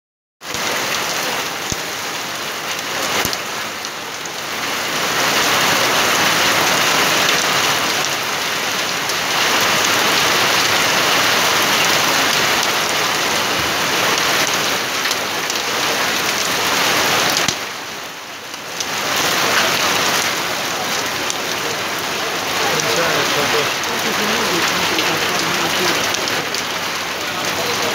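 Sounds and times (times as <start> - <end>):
heavy rain pouring: 0.4 - 27.9.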